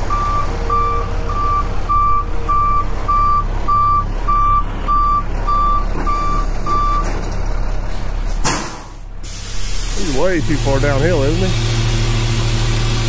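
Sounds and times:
truck reverse alarm beeping: 0:00.0 - 0:07.2
truck engine running: 0:00.0 - 0:13.0.

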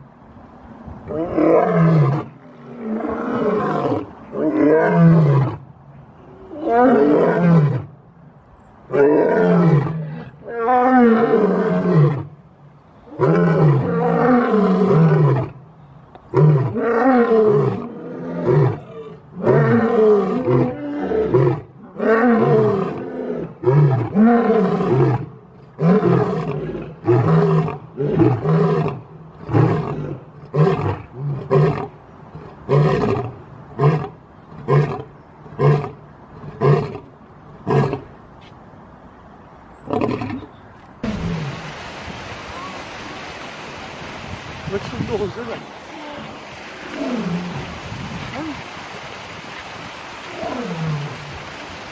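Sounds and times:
lion roaring: 0:01.1 - 0:05.6.

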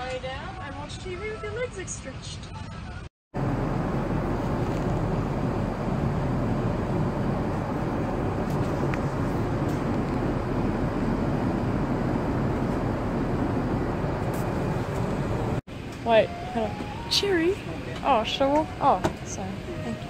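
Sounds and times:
low hum: 0:03.4 - 0:15.6
cabin ventilation air rushing: 0:03.4 - 0:17.2.

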